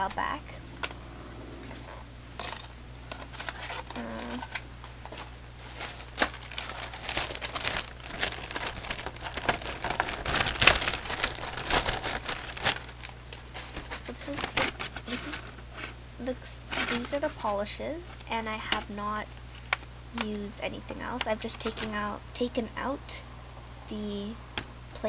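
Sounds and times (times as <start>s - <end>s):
plastic bag crinkling: 1.9s - 15.5s.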